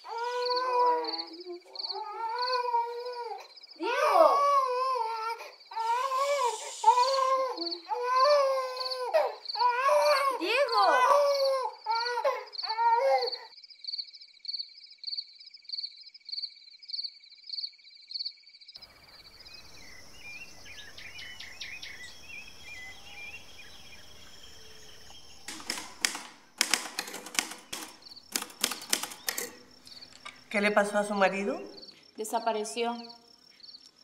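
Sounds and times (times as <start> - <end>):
faint outdoor hiss: 0.0 - 12.8, 13.6 - 34.0
birds chirping: 0.0 - 13.4, 18.8 - 34.0
pulsing high insect trill: 0.0 - 26.0
typewriter keys clacking: 25.5 - 30.3.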